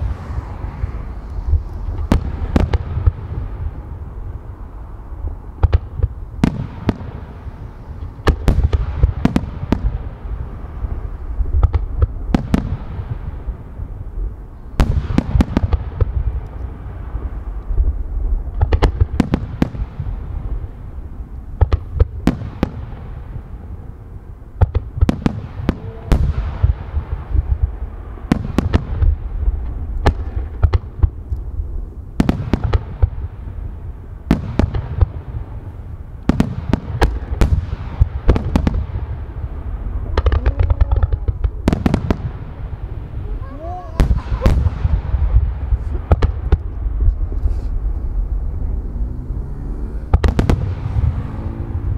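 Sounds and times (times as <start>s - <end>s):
low rumble: 0.0s - 9.1s, 37.2s - 51.9s
fireworks bursting with sharp bangs: 0.0s - 49.0s, 49.9s - 51.9s.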